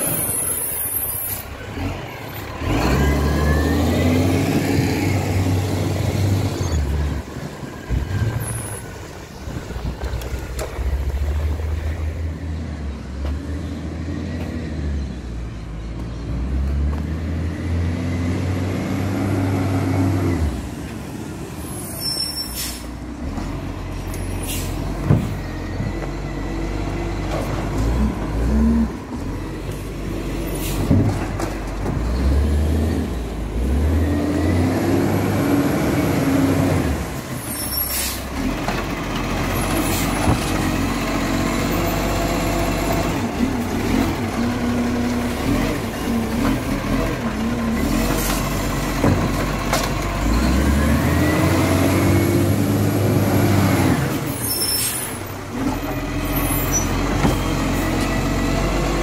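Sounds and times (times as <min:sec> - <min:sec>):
garbage truck diesel engine: 0:00.0 - 0:59.0
air-brake hisses: 0:22.0 - 0:23.0, 0:37.6 - 0:38.3, 0:54.4 - 0:55.2.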